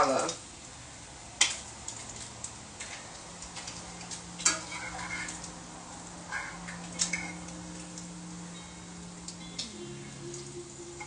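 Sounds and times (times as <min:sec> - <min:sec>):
utensils clattering against pans: 0:03.5 - 0:05.6, 0:06.2 - 0:08.0.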